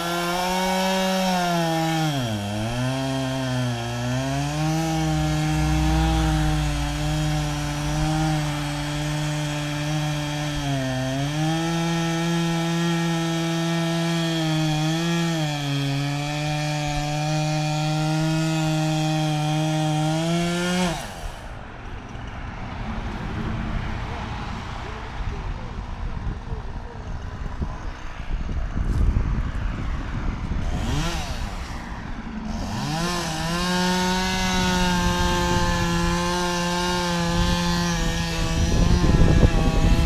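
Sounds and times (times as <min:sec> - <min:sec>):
chainsaw cutting into tree trunk: 0:00.0 - 0:22.3, 0:30.4 - 0:40.0.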